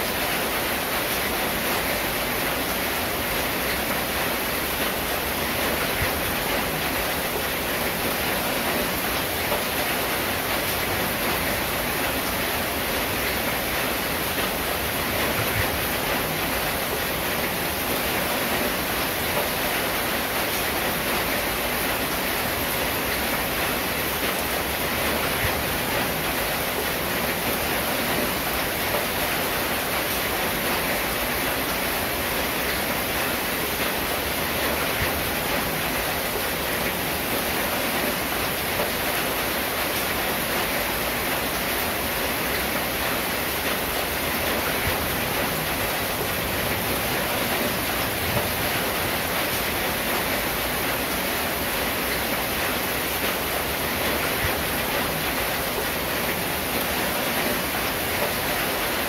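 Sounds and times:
rain on a tin roof: 0.0s - 59.0s.

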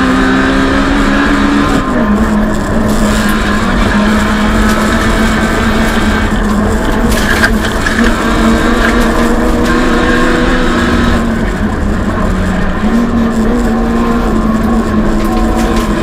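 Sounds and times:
car engine at high revs: 0.0s - 16.0s
road and tyre noise: 0.0s - 16.0s.

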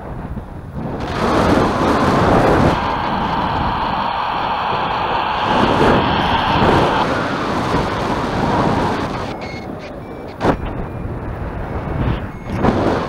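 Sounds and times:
wind buffeting microphone: 0.0s - 13.0s
faint short beeps: 9.2s - 12.6s.

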